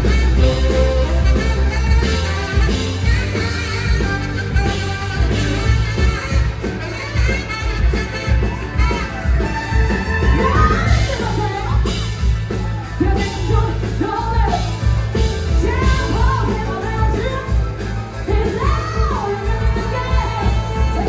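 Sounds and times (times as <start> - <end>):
live rock band playing: 0.0 - 21.0
woman singing belting voice: 13.0 - 21.0.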